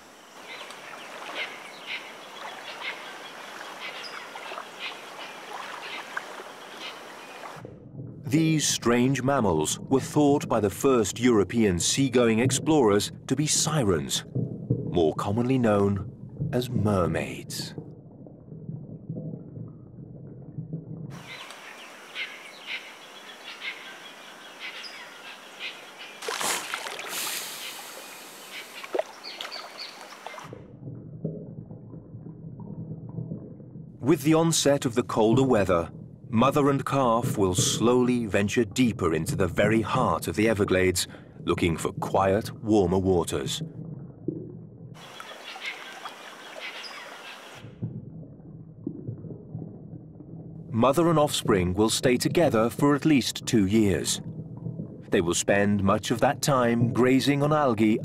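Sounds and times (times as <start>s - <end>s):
outdoor hiss: 0.0s - 2.3s, 25.9s - 30.4s
short bird calls: 0.4s - 7.6s, 21.2s - 26.2s, 45.0s - 47.6s
steady hiss: 26.3s - 29.0s.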